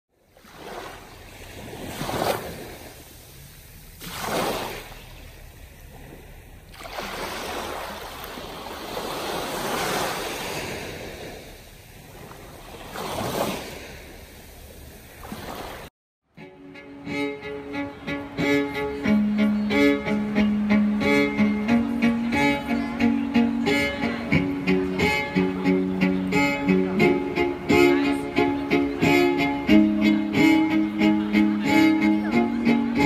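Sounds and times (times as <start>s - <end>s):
small waves washing on beach: 0.1s - 15.9s.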